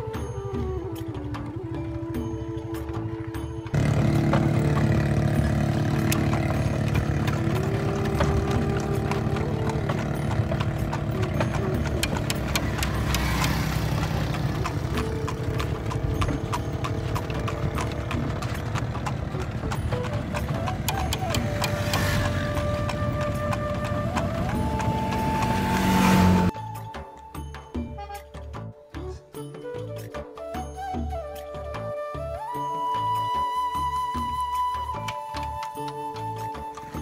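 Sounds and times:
horse hooves clip-clopping on asphalt: 0.0s - 26.6s, 34.0s - 37.0s.

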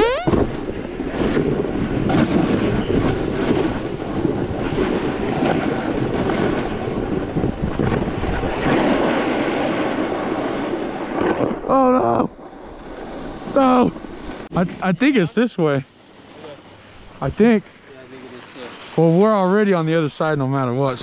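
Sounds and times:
snowboard scraping over snow: 0.0s - 11.7s, 12.4s - 15.0s
wind buffeting microphone: 0.3s - 14.5s.

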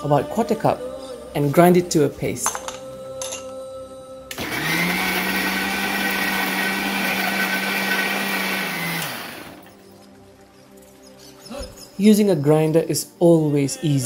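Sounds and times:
mixer grinder motor: 4.3s - 9.7s.

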